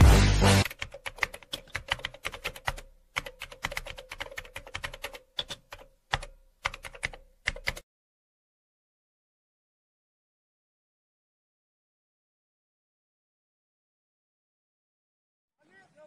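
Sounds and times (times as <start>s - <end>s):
electronic music: 0.0s - 0.7s
keyboard key clicks: 0.6s - 7.8s.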